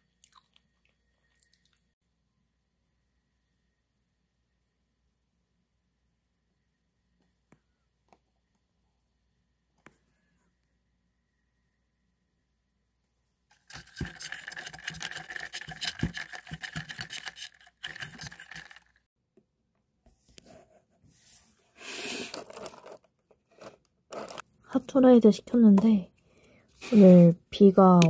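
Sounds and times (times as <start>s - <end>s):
food packaging crinkling: 13.5s - 19.0s, 22.2s - 23.0s, 23.6s - 24.4s.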